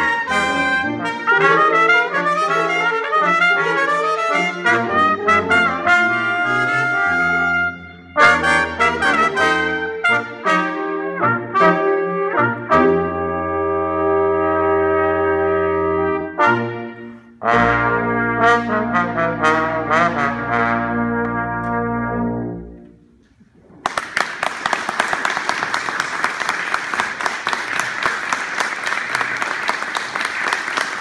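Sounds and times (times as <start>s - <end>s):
brass ensemble playing: 0.0s - 23.2s
audience applause: 23.7s - 31.0s.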